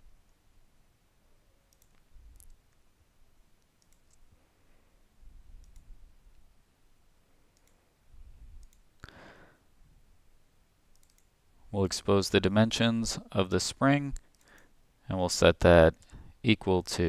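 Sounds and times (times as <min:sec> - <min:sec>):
computer mouse clicks: 0:01.7 - 0:02.8, 0:03.6 - 0:04.3, 0:05.6 - 0:05.9, 0:07.5 - 0:07.8, 0:08.6 - 0:09.0, 0:10.9 - 0:11.3.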